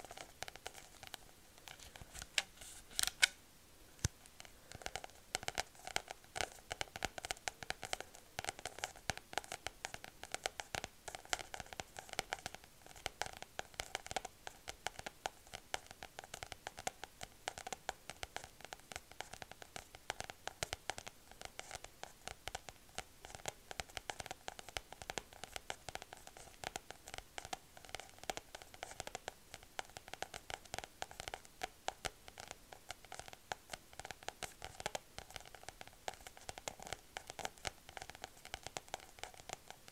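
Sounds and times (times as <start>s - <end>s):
fingernails tapping on paper packet: 4.4s - 39.9s.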